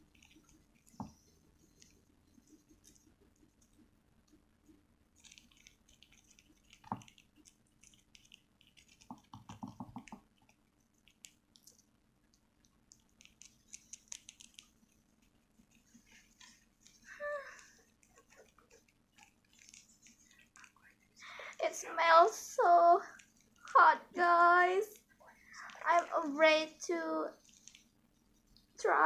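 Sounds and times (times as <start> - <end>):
rapid taps: 5.2 - 11.7.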